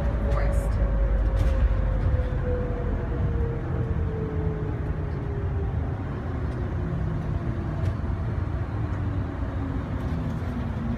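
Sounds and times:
tram running rumble: 0.0s - 10.9s.

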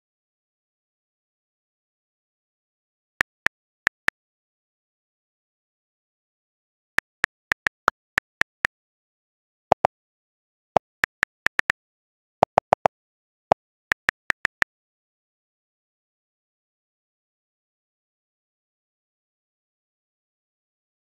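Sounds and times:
on-screen keyboard key clicks: 10.8s - 11.7s, 13.9s - 14.6s.

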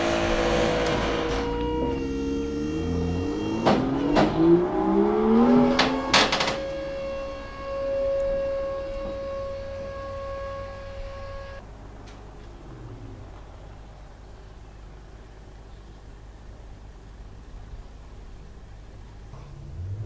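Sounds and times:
car engine revving: 0.0s - 14.4s, 19.4s - 20.0s
exhaust cracks: 0.0s - 15.6s, 18.9s - 20.0s.

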